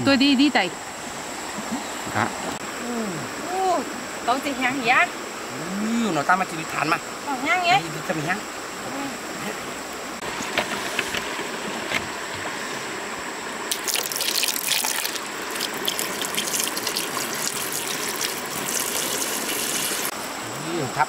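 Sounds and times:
running stream: 0.0 - 21.0
water poured into metal pot: 13.7 - 20.1.

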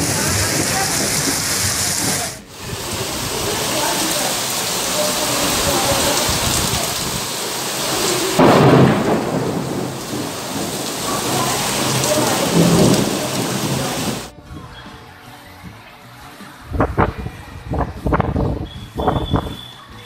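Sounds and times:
heavy rain pouring: 0.0 - 14.3
thunder clap and rumbles: 4.4 - 14.3.

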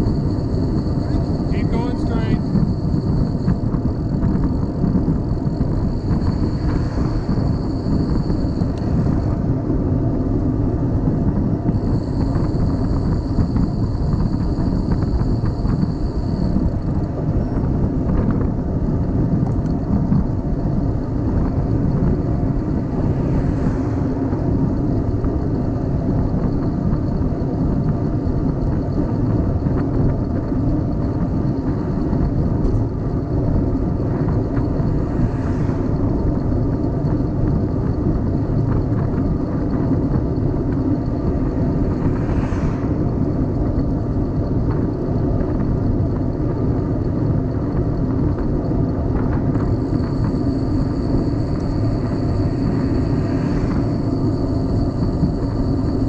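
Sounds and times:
faint high whine: 0.0 - 10.8, 49.2 - 56.0
bicycle tyre and road noise: 0.0 - 56.0
wind on microphone: 0.0 - 56.0.

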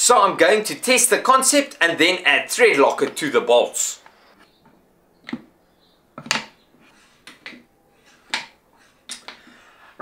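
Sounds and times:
wooden knocks and clicks: 4.6 - 5.5, 6.2 - 6.6, 7.2 - 7.7, 8.3 - 9.5.

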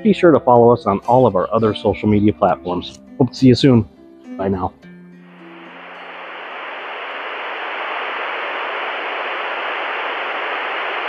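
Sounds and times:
static hiss: 5.3 - 11.0.

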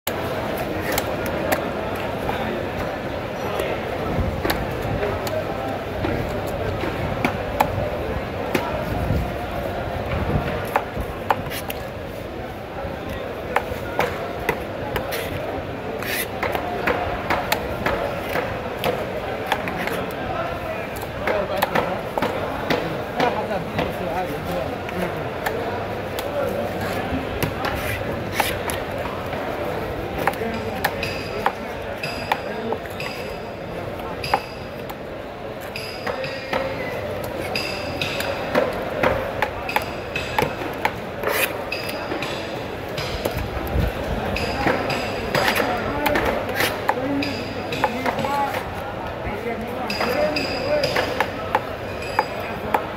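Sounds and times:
knife rasping through fish: 16.0 - 16.3, 27.7 - 28.7.

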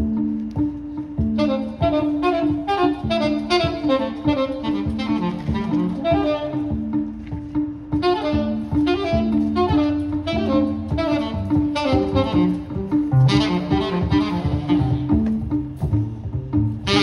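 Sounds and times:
plucked double bass: 0.0 - 17.0
saxophone fast run: 1.3 - 7.0, 7.9 - 15.8.

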